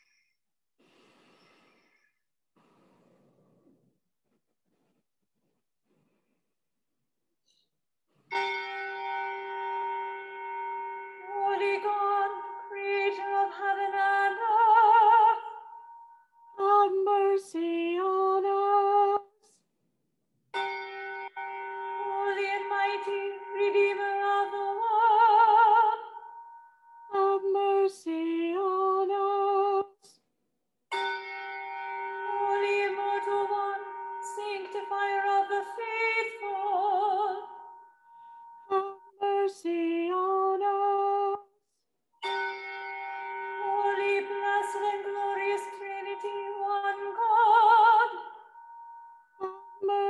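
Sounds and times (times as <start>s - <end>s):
woman singing chant: 43.7s - 48.4s.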